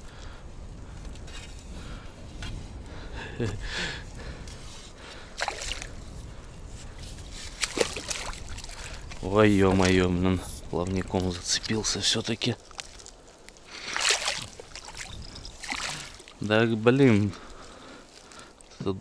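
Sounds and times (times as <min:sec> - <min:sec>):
water sloshing: 0:05.0 - 0:06.0, 0:07.4 - 0:18.8
fish thrashing in water: 0:05.4 - 0:05.9, 0:07.5 - 0:09.2, 0:12.6 - 0:16.4
sharp splashes: 0:05.4 - 0:05.9, 0:07.5 - 0:09.2, 0:12.6 - 0:16.5.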